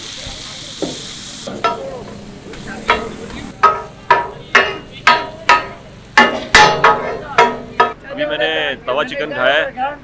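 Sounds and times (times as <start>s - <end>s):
faint sizzling: 0.0s - 8.0s
spatula clanking on metal griddle: 0.8s - 8.0s.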